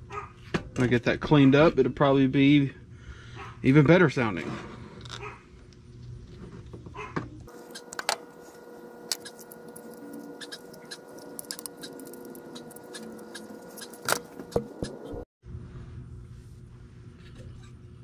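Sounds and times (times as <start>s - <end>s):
faint steady hum: 5.0s - 18.0s.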